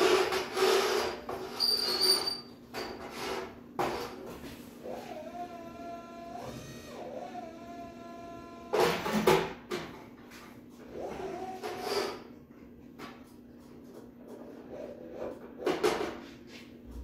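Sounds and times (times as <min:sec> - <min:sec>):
electric lift motor whining: 0:04.8 - 0:08.8.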